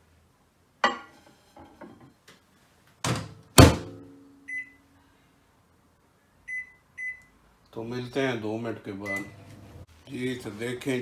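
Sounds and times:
microwave door slamming: 3.1s - 4.0s.

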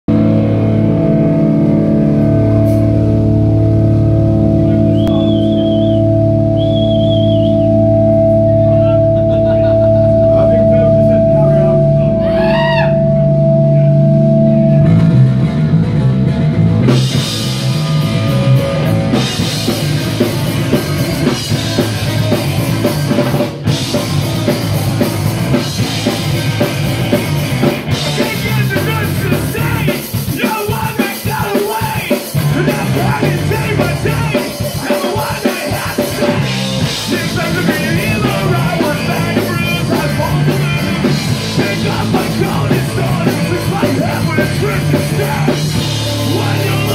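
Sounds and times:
punk rock band playing: 0.1s - 46.9s
person singing: 28.0s - 46.9s.

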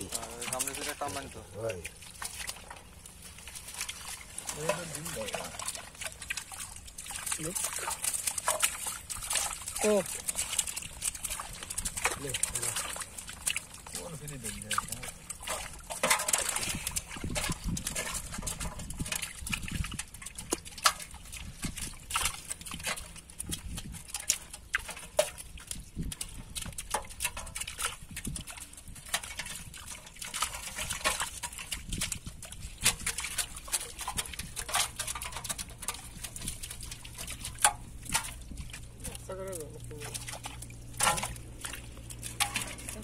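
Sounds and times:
prawns clicking and slapping: 0.0s - 43.0s
splashing water: 0.0s - 43.0s.

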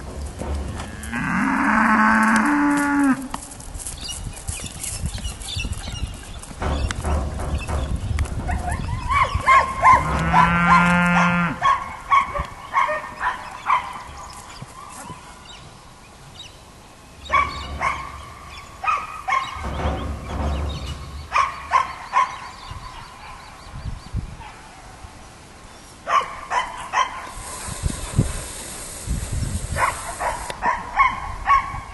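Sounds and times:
dog barking: 8.5s - 14.2s, 17.3s - 18.2s, 18.8s - 19.6s, 21.3s - 23.5s, 26.1s - 27.4s, 29.8s - 31.9s.

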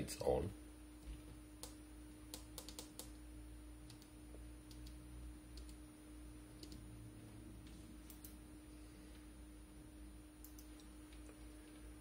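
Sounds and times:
low hum: 0.5s - 12.0s.

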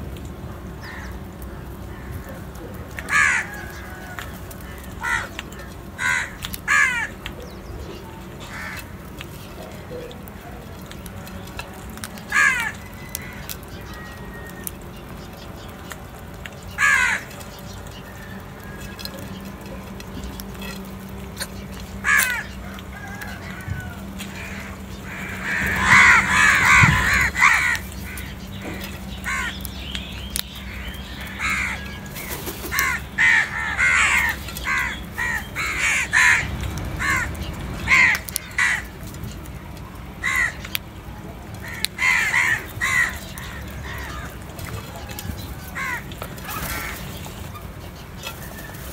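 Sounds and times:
crows cawing: 0.8s - 1.2s, 1.8s - 7.3s, 8.4s - 9.1s, 12.2s - 14.7s, 16.6s - 19.7s, 21.4s - 29.8s, 30.4s - 39.0s, 40.2s - 40.8s, 41.6s - 47.3s.

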